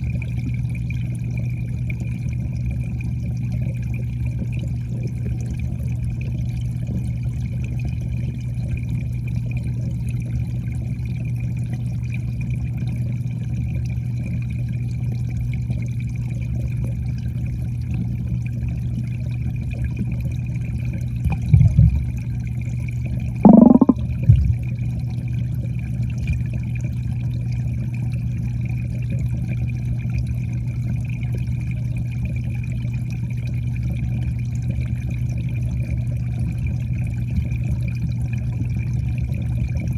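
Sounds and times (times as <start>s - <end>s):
underwater low hum: 0.0s - 39.9s
thin high whine: 23.4s - 24.6s.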